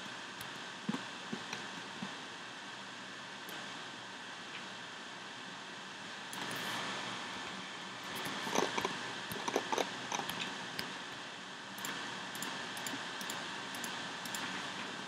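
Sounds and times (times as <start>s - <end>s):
mouse and keyboard clicks: 8.1s - 10.9s.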